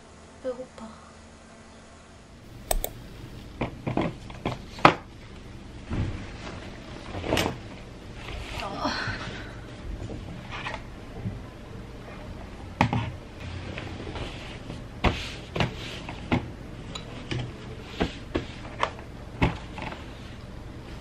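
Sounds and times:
low steady hum: 0:00.0 - 0:03.9.

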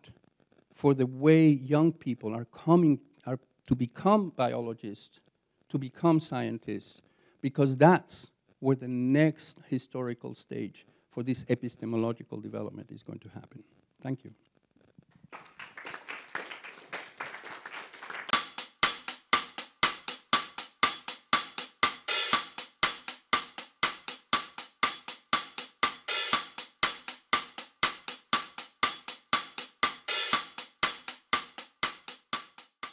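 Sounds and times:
applause: 0:15.3 - 0:18.3
music with fast drum beat: 0:17.5 - 0:32.9.

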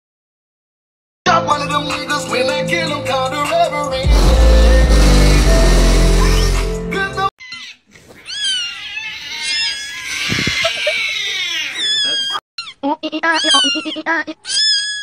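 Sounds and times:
music: 0:01.3 - 0:07.3
kitten meowing and crying: 0:07.4 - 0:12.7, 0:13.3 - 0:15.0.

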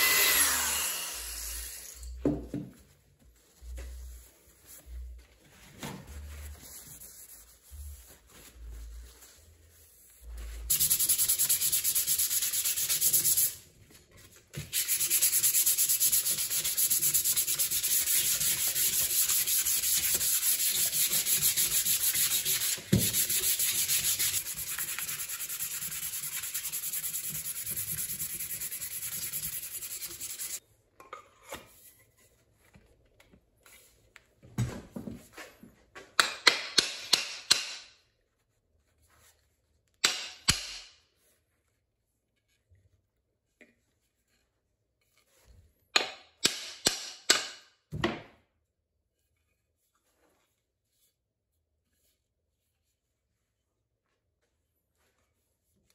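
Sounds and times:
sandpaper scratching on wood: 0:10.7 - 0:13.6, 0:14.7 - 0:30.6.

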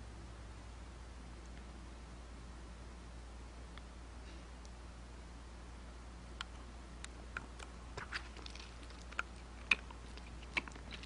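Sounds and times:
wet mouth clicks and lip smacks: 0:07.5 - 0:11.0.

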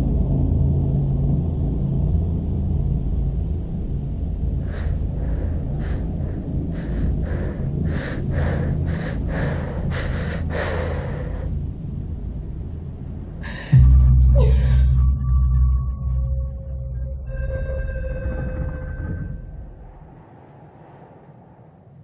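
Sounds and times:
low drone: 0:00.0 - 0:22.0
woman gasping breaths: 0:04.6 - 0:11.6, 0:13.4 - 0:15.0
loud low boom: 0:13.6 - 0:21.6.

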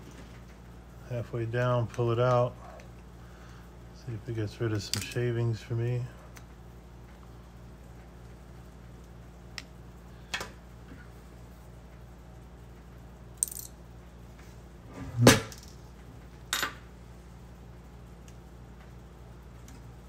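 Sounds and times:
steady low hum: 0:00.0 - 0:20.0
small parts clicking and knocking: 0:13.4 - 0:13.8.

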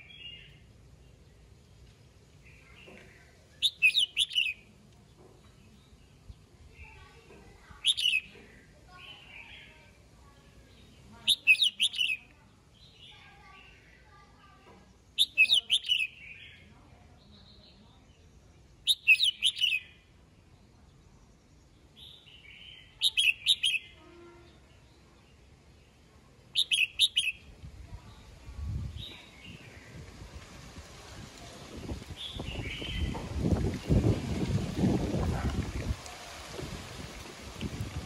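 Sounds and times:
bird singing whistled phrases: 0:03.6 - 0:04.6, 0:07.8 - 0:08.3, 0:11.3 - 0:12.2, 0:15.2 - 0:16.6, 0:18.8 - 0:19.9, 0:22.8 - 0:24.0, 0:26.6 - 0:27.5.

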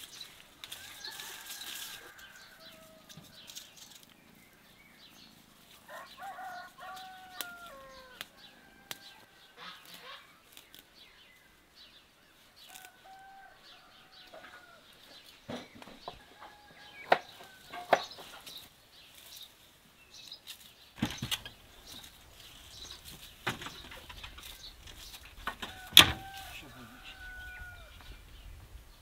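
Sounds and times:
snaps and rustles: 0:03.0 - 0:04.2, 0:06.9 - 0:11.1, 0:12.6 - 0:13.0, 0:20.2 - 0:26.5.

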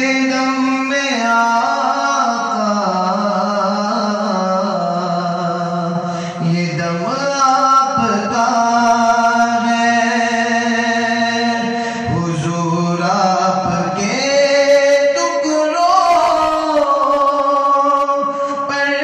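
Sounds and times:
man singing devotional song: 0:00.0 - 0:19.0.

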